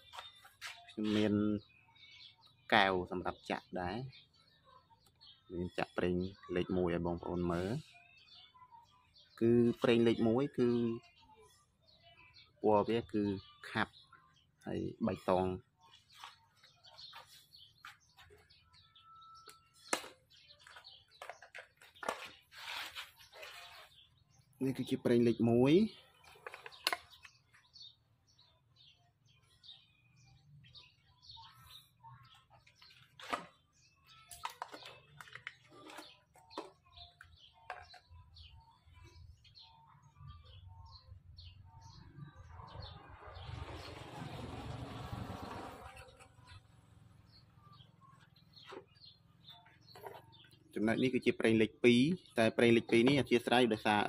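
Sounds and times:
small birds chirping: 0.0s - 54.0s
rustling scrape: 22.0s - 24.1s
plastic jug clicks and knocks: 37.7s - 38.0s.

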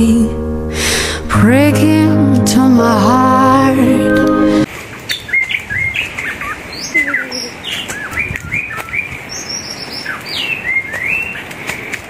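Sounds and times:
small birds chirping: 5.1s - 11.5s.

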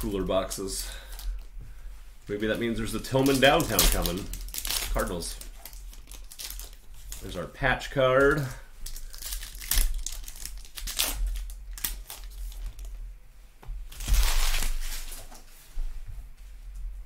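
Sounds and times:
foil wrappers crinkling: 2.3s - 7.5s, 8.2s - 12.9s, 13.9s - 15.4s.

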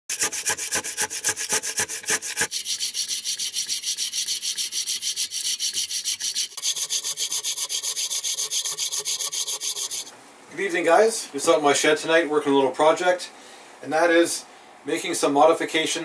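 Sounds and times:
crosscut saw rasping through log: 0.1s - 10.1s.

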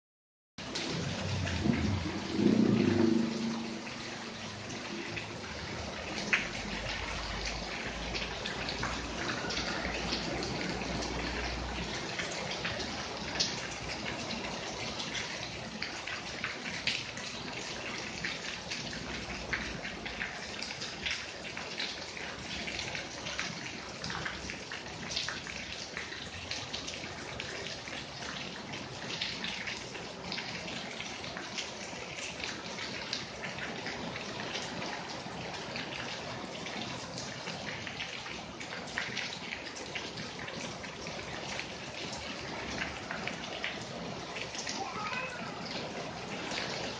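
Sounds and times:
raindrops tapping close by: 0.6s - 46.9s
runoff streaming from roof: 0.6s - 46.9s
steady rain falling: 0.6s - 46.9s
low rumble: 0.8s - 4.1s.

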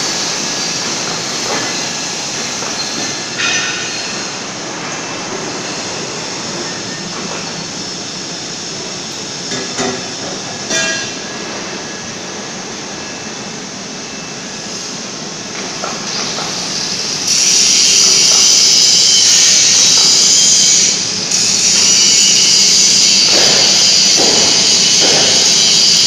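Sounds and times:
loud steady hiss: 0.0s - 26.0s
welding machine running: 14.7s - 26.0s.

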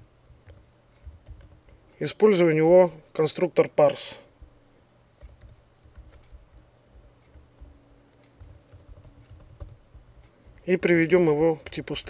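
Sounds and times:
faint keyboard typing: 0.2s - 2.9s, 5.2s - 12.0s.

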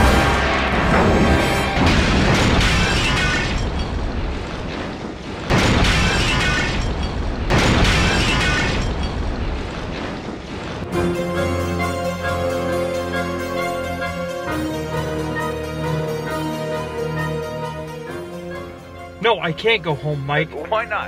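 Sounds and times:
loud music score: 0.0s - 2.4s
explosion blasts: 0.0s - 10.9s.

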